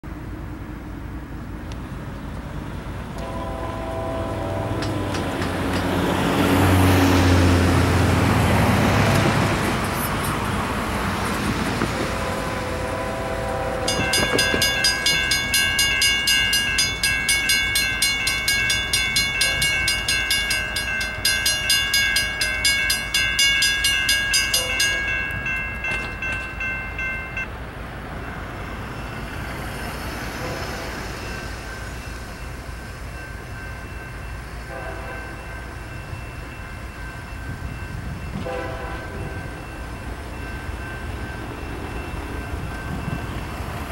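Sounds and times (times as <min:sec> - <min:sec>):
electronic crossing bell ringing: 0:13.9 - 0:27.5
mechanical crossing bell ringing: 0:13.9 - 0:27.5.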